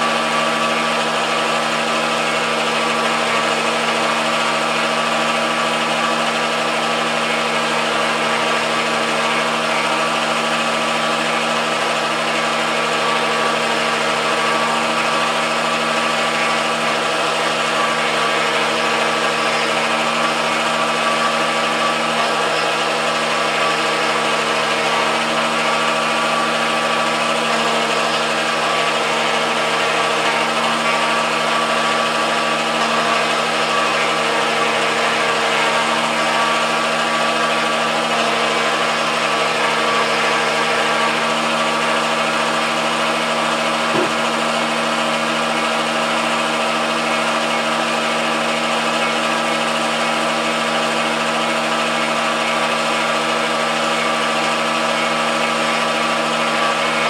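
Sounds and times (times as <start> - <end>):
lathe motor whine and hum: 0.0 - 57.0.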